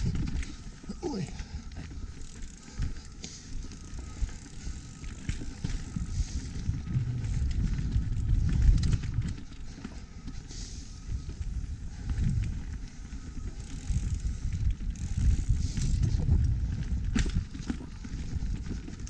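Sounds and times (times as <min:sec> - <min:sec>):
bike rattles and clicks: 0:00.0 - 0:19.0
wind rumbling on microphone: 0:00.0 - 0:19.0.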